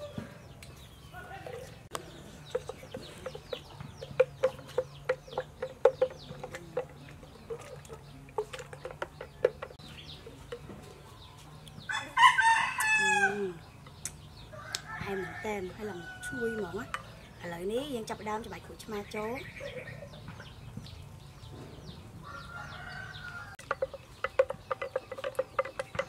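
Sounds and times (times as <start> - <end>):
ladle knocking plastic pitcher: 2.5 - 9.8, 23.6 - 26.0
rooster crowing: 11.9 - 13.4.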